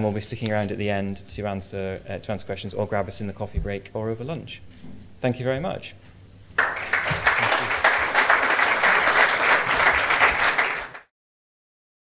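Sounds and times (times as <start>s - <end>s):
audience applauding: 6.6s - 11.1s.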